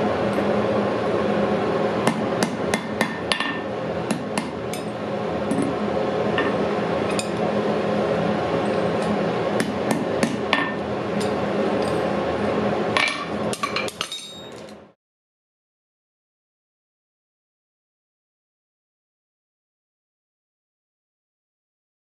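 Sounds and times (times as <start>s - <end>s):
hammer striking metal on anvil: 2.0s - 5.7s, 9.0s - 12.0s.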